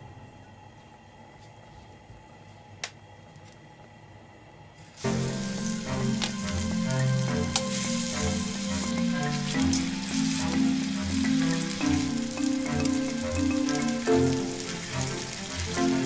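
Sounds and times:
meatballs sizzling in frying pan: 5.0 - 16.0.

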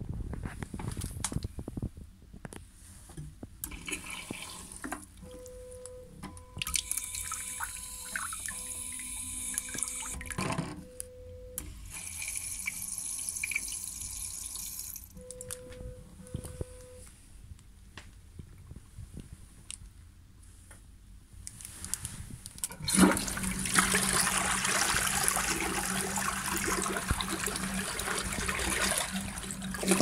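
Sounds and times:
water running into toilet bowl: 3.7 - 4.8, 12.0 - 15.0, 22.7 - 30.0.

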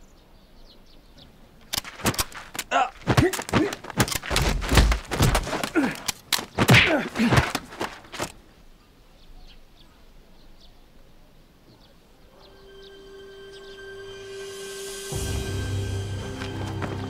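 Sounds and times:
footsteps shuffling on dirt: 1.7 - 8.5
thuds and sharp knocks: 1.9 - 8.3.

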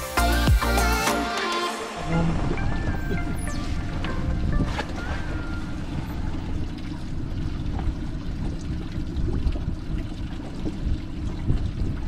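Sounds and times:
steady low rumble: 2.0 - 12.0
water lapping against boat hull: 4.0 - 12.0.

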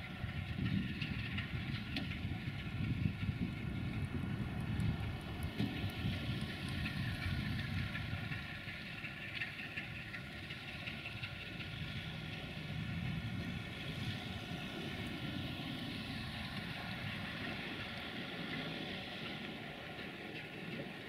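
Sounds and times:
locomotive diesel engine rumbling: 0.0 - 21.0.

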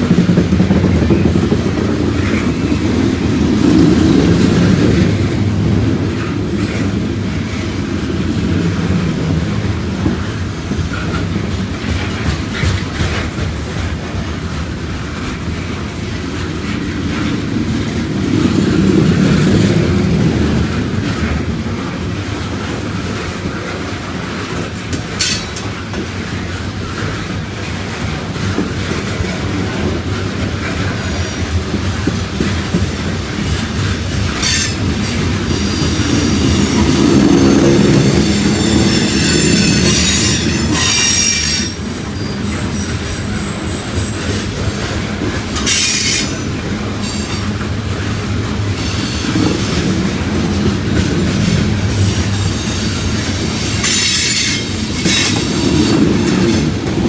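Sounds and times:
steel wheels rumbling on rail: 0.0 - 57.0
high wheel squeals: 35.6 - 44.4.

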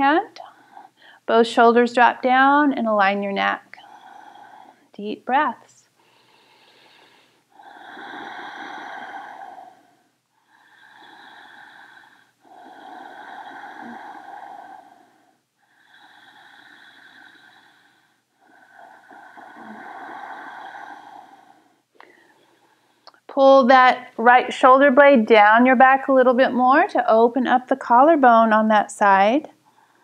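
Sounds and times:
person breathing slowly and deeply: 3.8 - 4.9, 6.0 - 23.1, 29.6 - 30.0.

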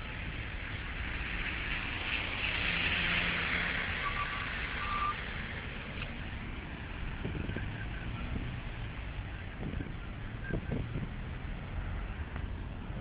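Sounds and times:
tyres hissing on wet road: 0.0 - 9.1
low rumble of engines: 0.0 - 13.0
short beeps: 4.0 - 5.2.

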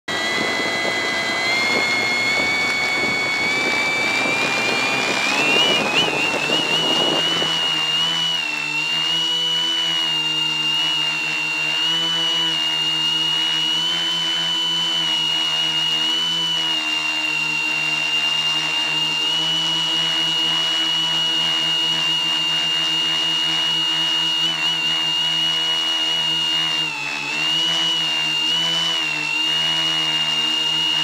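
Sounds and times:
low hum: 0.1 - 16.6
drone motors whining: 0.1 - 31.0.

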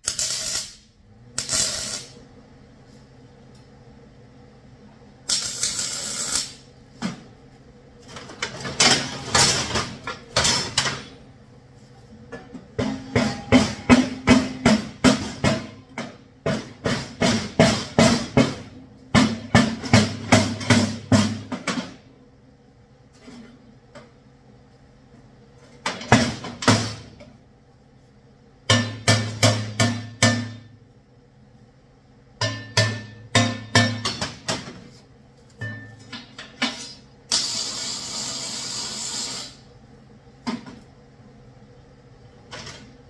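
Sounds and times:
welding arc crackling: 0.0 - 2.3, 5.2 - 6.8, 37.3 - 39.7
hammer striking steel plate: 12.8 - 15.9, 28.7 - 30.8, 32.4 - 34.7, 35.6 - 36.1.

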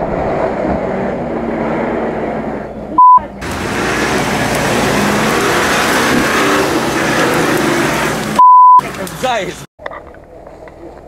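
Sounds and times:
loud steady rushing noise: 0.0 - 9.7
vehicle engine under load: 0.0 - 10.8
censor bleep: 3.0 - 3.2, 8.4 - 8.8.

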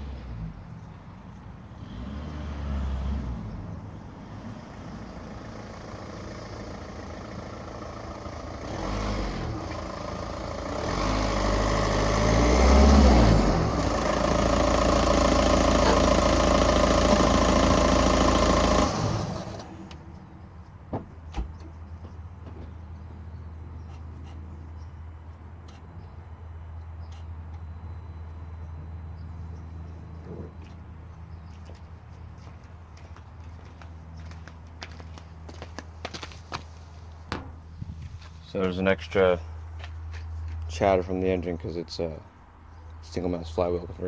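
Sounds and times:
car engine and exhaust revving: 0.0 - 0.9, 1.7 - 20.1.

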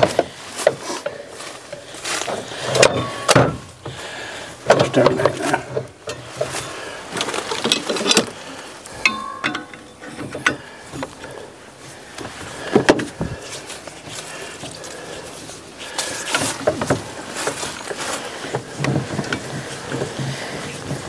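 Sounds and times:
metal clicks and knocks: 4.6 - 6.6, 7.2 - 8.4, 9.0 - 11.2.

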